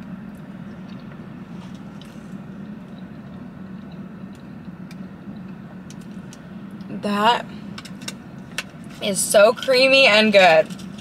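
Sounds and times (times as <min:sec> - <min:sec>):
car hum inside cabin: 0:00.0 - 0:11.0
chewing clicks: 0:00.8 - 0:01.2.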